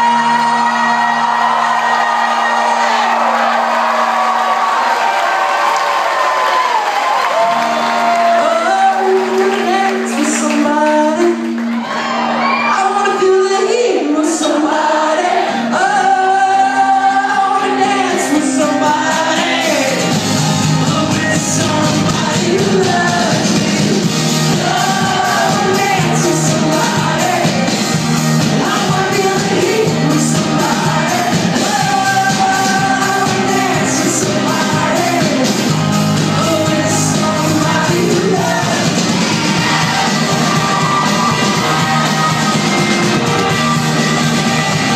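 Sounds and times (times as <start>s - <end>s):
person singing: 0.0s - 3.7s, 7.3s - 44.9s
live rock band playing: 7.4s - 12.7s, 15.5s - 44.9s
electric guitars: 15.3s - 44.9s.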